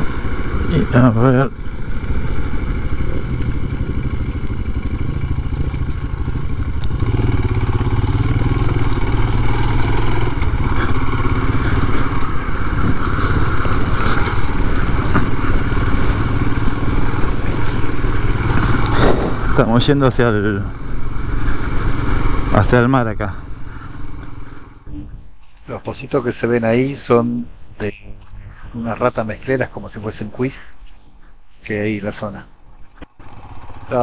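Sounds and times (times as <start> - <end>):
motorcycle engine under load: 0.0 - 25.6, 32.7 - 34.0
motorcycle clattering over bumps: 1.5 - 25.8, 32.7 - 34.0.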